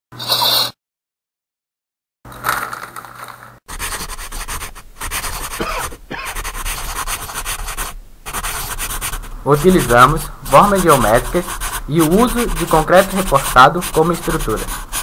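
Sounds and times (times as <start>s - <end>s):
pencil scratching on paper: 3.7s - 15.0s.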